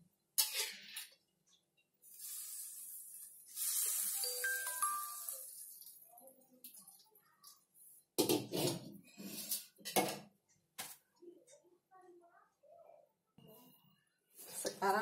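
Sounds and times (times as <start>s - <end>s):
greens hissing in hot pan: 2.0s - 5.6s.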